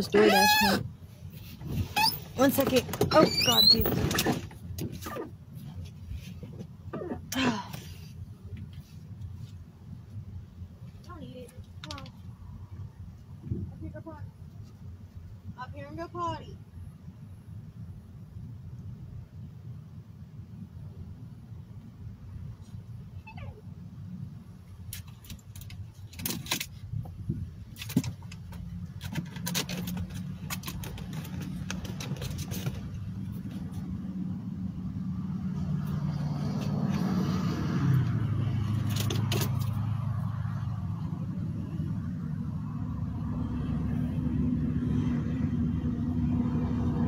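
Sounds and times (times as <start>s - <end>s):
vehicle engine hum from inside cab: 0.0s - 47.0s
clicks and rattles: 24.9s - 26.8s, 27.7s - 33.0s.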